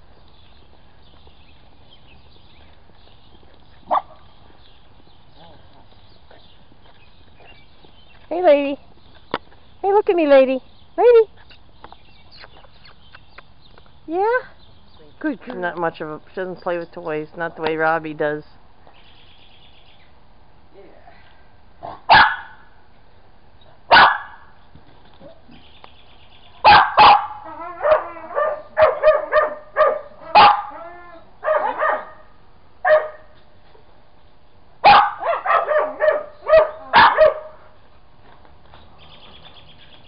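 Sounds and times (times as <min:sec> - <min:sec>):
dog barking: 0:03.9 - 0:04.2, 0:21.8 - 0:22.6, 0:23.9 - 0:24.5, 0:26.6 - 0:30.8, 0:31.4 - 0:33.3, 0:34.8 - 0:37.7.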